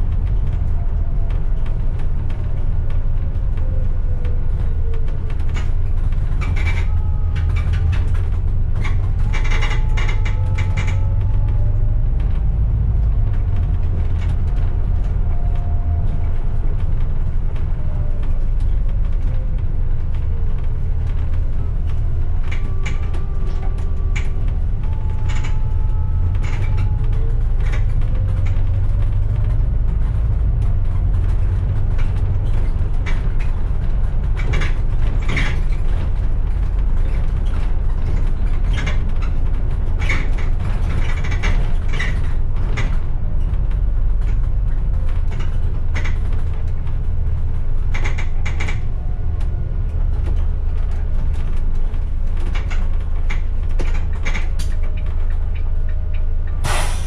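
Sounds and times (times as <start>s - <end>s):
bodywork rattles and creaks: 0.0s - 57.0s
bus engine rumble: 0.0s - 57.0s
engine whine: 0.0s - 57.0s.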